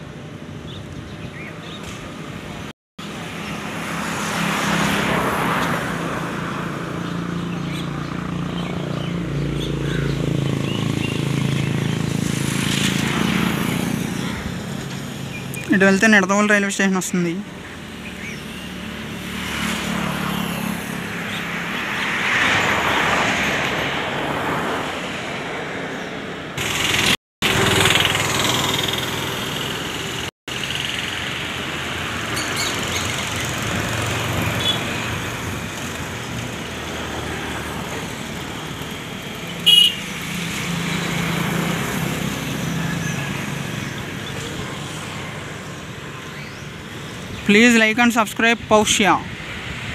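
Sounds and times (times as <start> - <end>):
road traffic passing: 0.0 - 49.9
short horn toot: 39.6 - 40.0.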